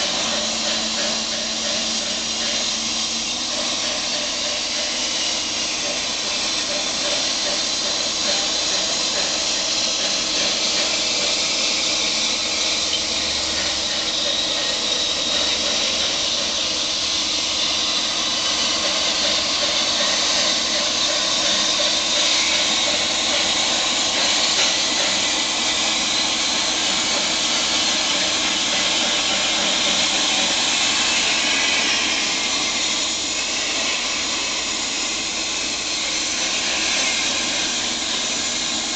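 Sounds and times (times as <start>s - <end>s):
plasma cutter hissing: 0.0s - 38.9s.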